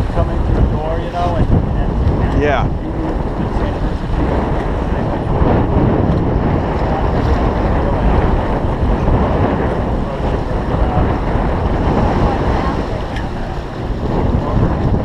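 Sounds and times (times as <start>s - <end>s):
water rushing along hull: 0.0s - 15.0s
wind buffeting microphone: 0.0s - 15.0s.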